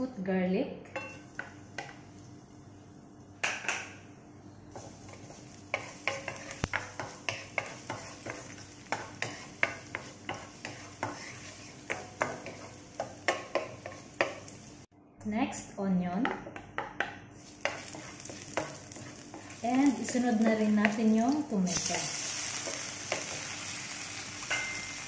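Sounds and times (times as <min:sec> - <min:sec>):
garlic sizzling in hot oil: 0:01.0 - 0:02.7, 0:04.7 - 0:14.9, 0:17.3 - 0:25.0
wooden spoon scraping a pan: 0:04.7 - 0:14.5, 0:17.4 - 0:23.6.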